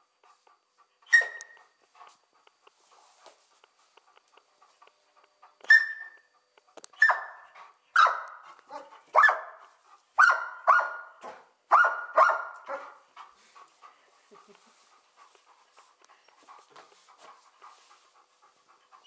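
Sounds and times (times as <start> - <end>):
dog barking: 1.1 - 1.6, 7.0 - 9.6, 10.2 - 13.0.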